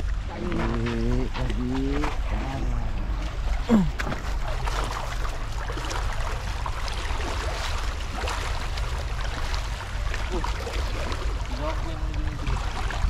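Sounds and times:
footsteps splashing through shallow water: 0:00.0 - 0:13.0
wind rumble on microphone: 0:00.0 - 0:13.0.

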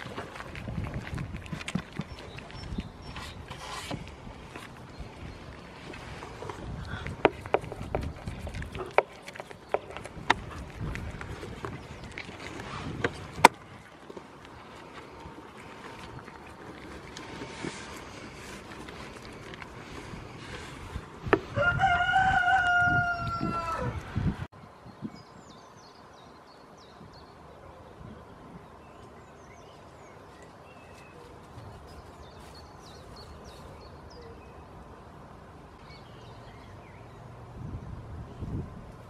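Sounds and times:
small birds twittering: 0:01.7 - 0:10.6, 0:24.8 - 0:35.0.

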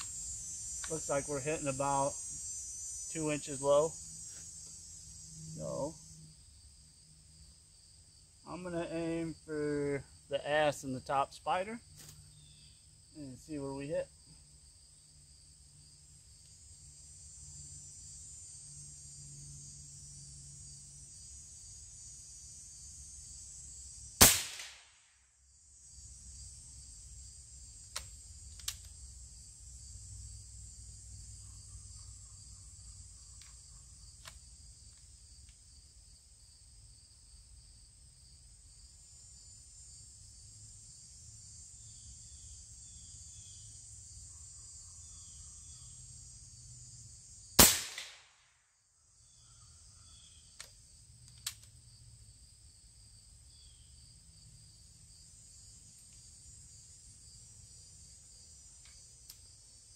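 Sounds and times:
high insect drone: 0:00.0 - 0:59.9
air rifle shot: 0:24.2 - 0:25.0, 0:47.6 - 0:48.4.

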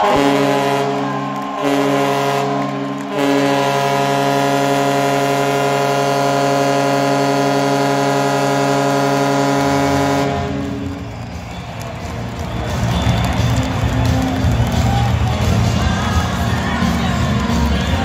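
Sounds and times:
air horn blast: 0:00.0 - 0:11.0.

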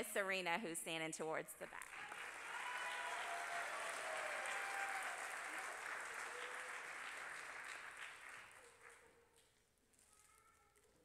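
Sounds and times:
audience applauding: 0:01.8 - 0:09.2.

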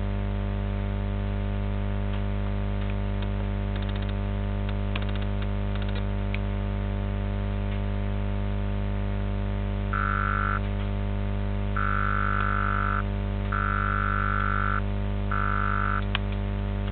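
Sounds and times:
electrical mains hum: 0:00.0 - 0:16.9
high electronic beeps: 0:10.0 - 0:10.6, 0:11.8 - 0:13.0, 0:13.6 - 0:14.8, 0:15.4 - 0:16.0.

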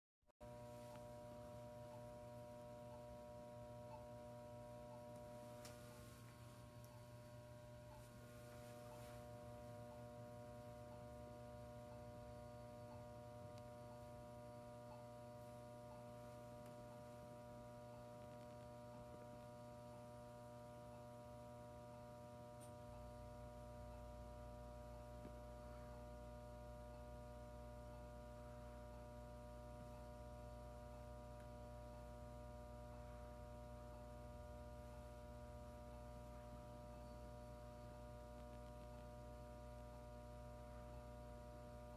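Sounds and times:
electrical hum of signal equipment: 0:00.4 - 0:41.9
faint regular tick: 0:05.1 - 0:05.8.

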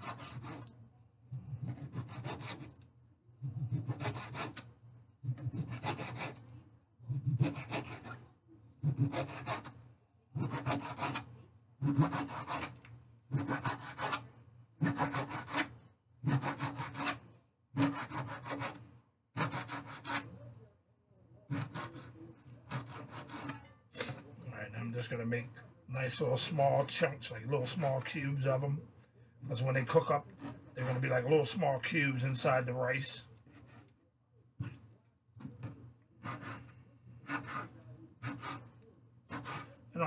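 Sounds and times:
knife sawing through fish: 0:00.0 - 0:00.7, 0:01.3 - 0:02.8, 0:03.4 - 0:04.6, 0:05.2 - 0:06.4, 0:07.1 - 0:08.2, 0:08.8 - 0:09.8, 0:10.4 - 0:20.3, 0:21.5 - 0:24.2, 0:29.8 - 0:31.2, 0:33.5 - 0:33.9, 0:36.2 - 0:38.7, 0:39.3 - 0:39.8.

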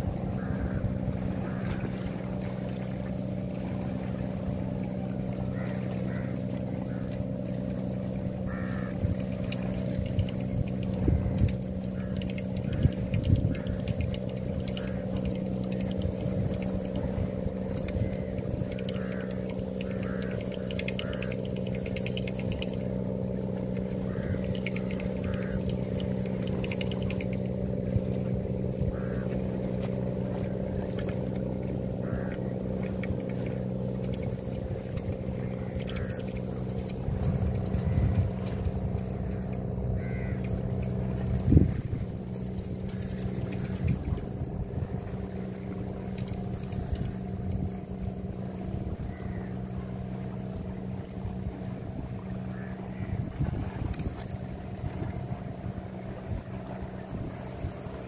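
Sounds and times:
low machine hum: 0:00.0 - 0:58.0
thin insect-like buzz: 0:01.4 - 0:58.0.

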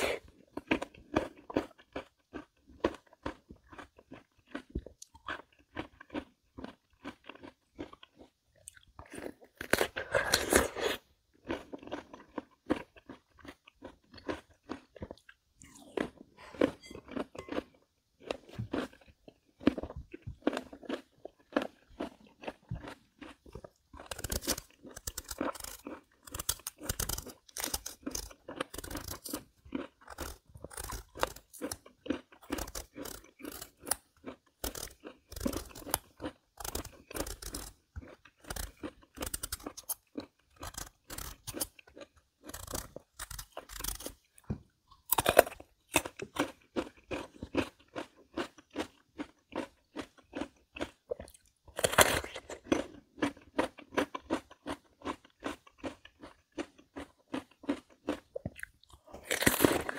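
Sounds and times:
crunching and chewing melon: 0:00.0 - 0:59.9.

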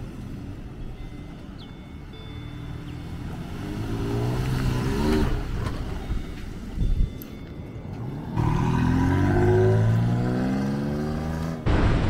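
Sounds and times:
pickup truck engine accelerating: 0:00.0 - 0:06.8, 0:07.9 - 0:11.7.

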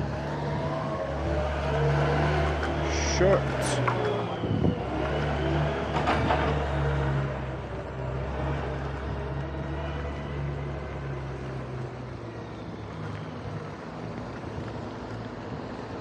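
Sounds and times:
street traffic: 0:00.0 - 0:16.0.

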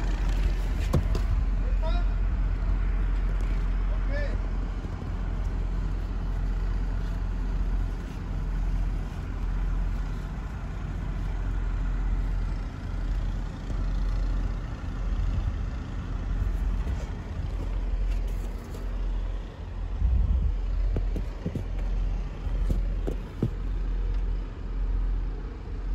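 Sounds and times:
wind gusting on microphone: 0:19.8 - 0:21.8.

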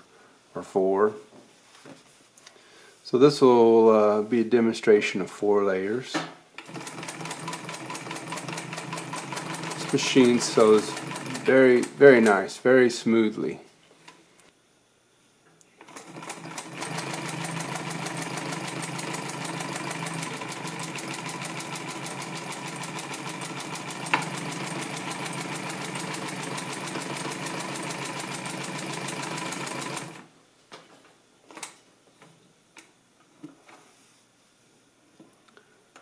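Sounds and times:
sewing machine stitching: 0:06.6 - 0:12.4, 0:15.8 - 0:30.2.

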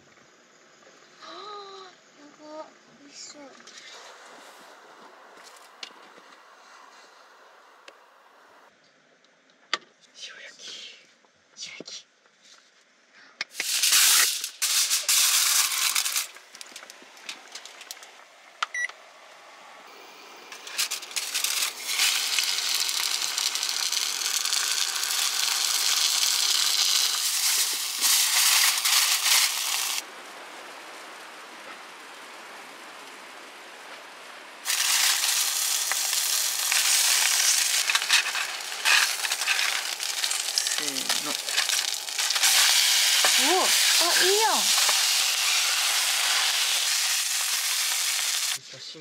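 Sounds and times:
fish sizzling: 0:13.5 - 0:18.5, 0:19.9 - 0:31.1, 0:34.6 - 0:48.6
short beep: 0:18.7 - 0:18.9.

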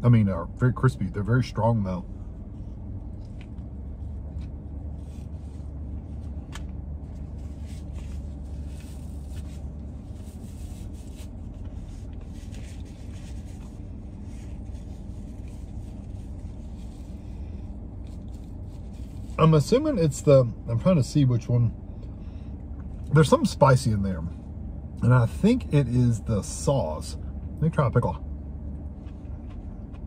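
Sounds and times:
car cabin hum: 0:00.0 - 0:30.0
faint clicks and rustles: 0:02.4 - 0:19.4
paper napkin rubbing: 0:07.1 - 0:17.3, 0:18.0 - 0:19.4
man chewing: 0:28.7 - 0:30.0.

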